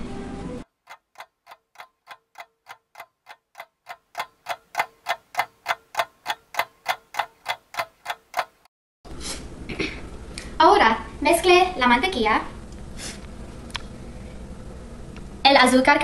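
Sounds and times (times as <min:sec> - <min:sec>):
clock ticking: 0:00.8 - 0:08.7.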